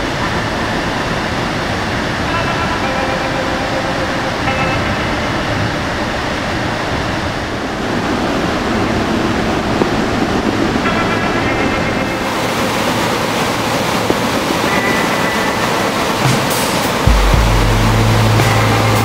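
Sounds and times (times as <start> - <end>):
floodwater rushing through spillway: 0.0 - 19.0.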